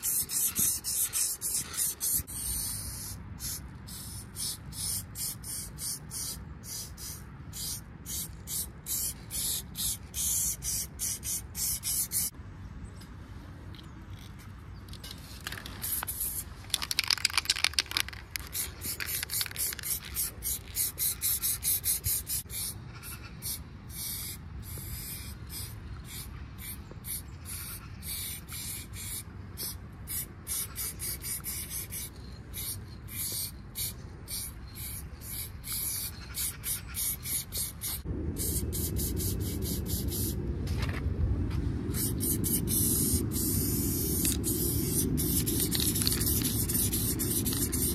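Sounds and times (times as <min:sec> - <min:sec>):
spray-paint can hissing: 0:00.0 - 0:12.3, 0:15.7 - 0:22.7, 0:23.4 - 0:40.4, 0:41.9 - 0:47.9
low rumble: 0:38.0 - 0:47.9.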